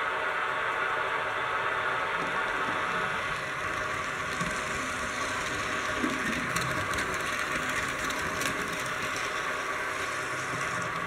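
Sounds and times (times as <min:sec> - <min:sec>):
model train motor whirring: 0:02.2 - 0:11.0
wheels clicking over rail joints: 0:02.2 - 0:11.0.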